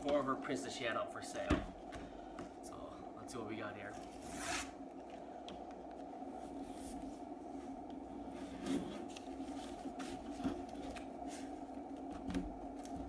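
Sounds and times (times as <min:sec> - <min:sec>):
steady low hum: 0:00.0 - 0:13.0
cardboard scraping and rubbing: 0:04.0 - 0:04.7.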